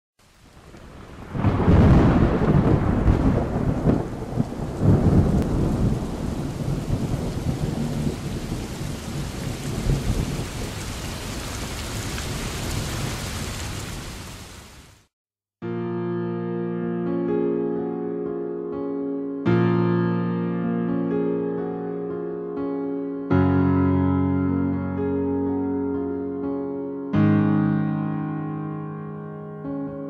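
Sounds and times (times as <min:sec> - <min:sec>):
hard rain: 0:00.2 - 0:15.1
thunder rumbling: 0:00.6 - 0:13.9.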